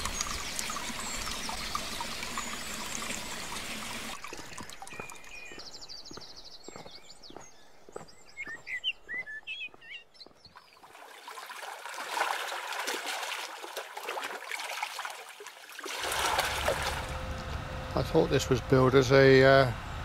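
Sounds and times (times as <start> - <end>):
small birds chirping: 0.0 - 10.9
footsteps on gravel: 4.3 - 10.7.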